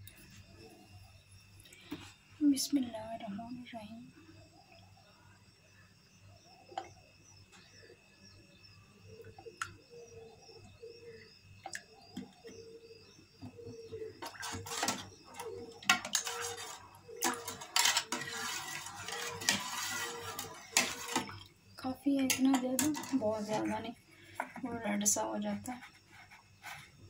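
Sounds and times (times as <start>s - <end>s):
spoon stirring in metal pot: 13.7s - 21.5s, 22.2s - 25.9s.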